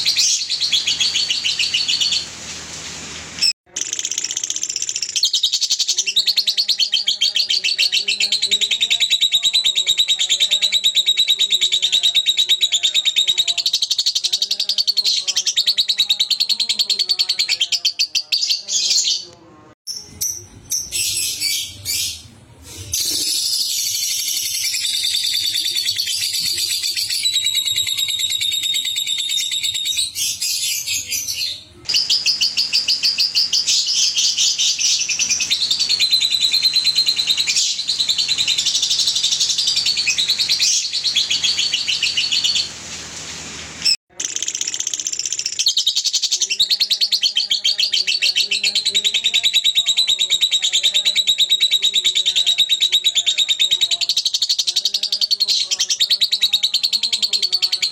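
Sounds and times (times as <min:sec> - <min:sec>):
lovebirds chattering trills: 0:23.0 - 0:42.7.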